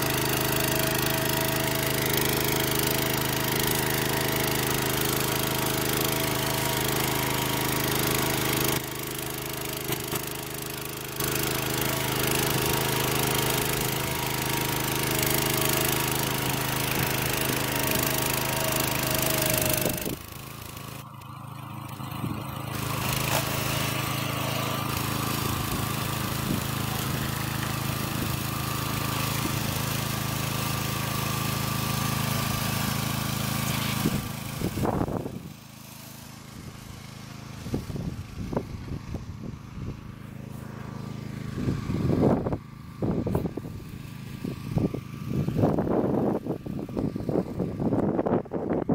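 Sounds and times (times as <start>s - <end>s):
plow mechanical clatter: 0.0s - 34.8s
small tractor engine running: 0.0s - 48.9s.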